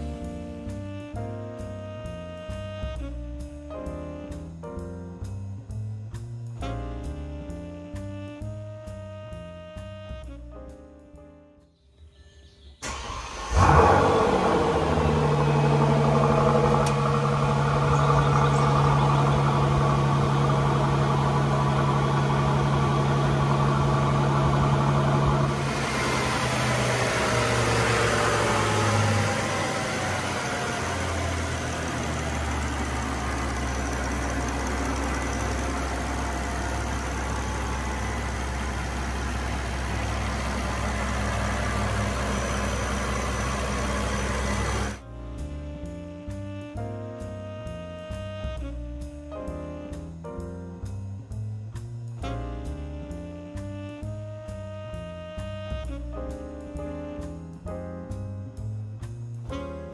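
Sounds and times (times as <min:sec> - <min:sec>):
car engine starting and idling: 0:12.8 - 0:45.4.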